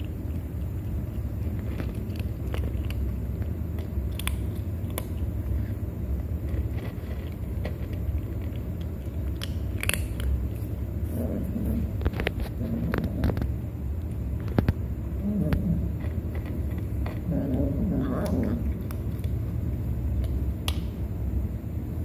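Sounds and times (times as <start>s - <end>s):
cat crunching dry kibble: 0.0s - 20.8s
steady low rumble: 0.0s - 22.0s.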